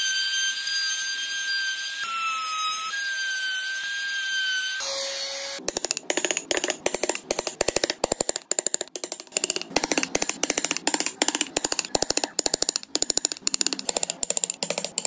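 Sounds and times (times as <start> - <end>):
hammer tapping carving gouge: 5.6 - 15.0.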